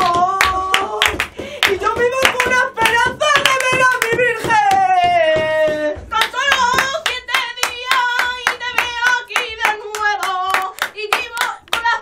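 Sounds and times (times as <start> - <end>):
hands clapping fast rhythm: 0.0 - 12.0
person singing: 0.0 - 12.0.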